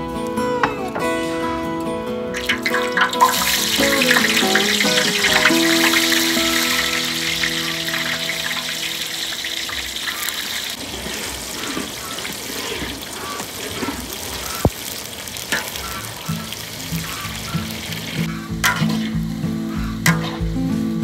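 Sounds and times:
oil bubbling and sizzling: 2.3 - 20.9
metal ladle clicking: 18.6 - 19.2, 20.1 - 20.4.

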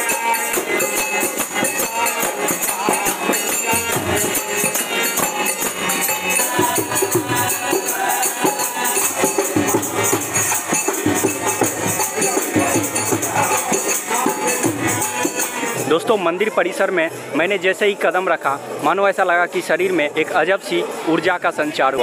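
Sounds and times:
barrel drum played by hand: 0.0 - 15.9
voices singing: 0.0 - 16.0
high metallic jingling: 0.0 - 16.2.

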